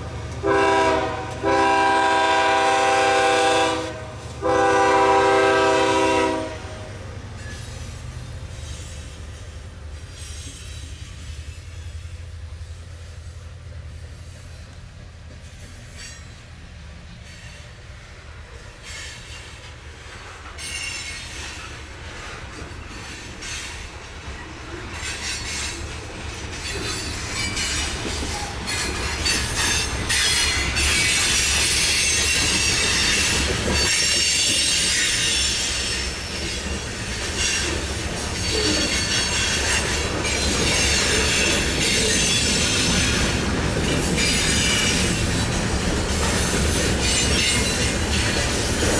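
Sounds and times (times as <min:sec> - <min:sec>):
train wheels rumbling on rail: 0:00.0 - 0:48.9
high wheel squeal: 0:26.6 - 0:43.4, 0:44.0 - 0:45.4.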